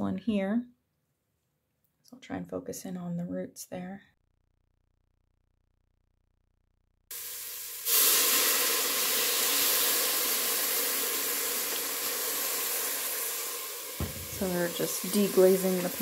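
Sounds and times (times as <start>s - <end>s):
leeks and garlic sizzling in a pot: 7.1s - 16.0s.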